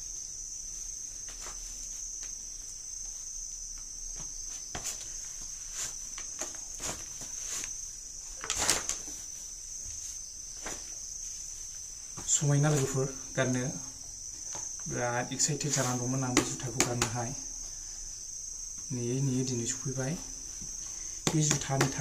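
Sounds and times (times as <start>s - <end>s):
high insect trill: 0.0s - 22.0s
sneaker knocking on concrete floor: 21.2s - 22.0s.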